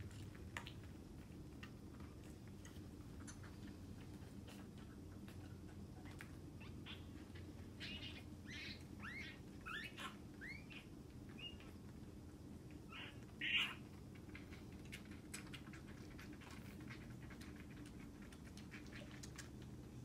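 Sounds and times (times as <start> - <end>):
kittens chirping mews: 5.9 - 11.9, 12.8 - 17.9.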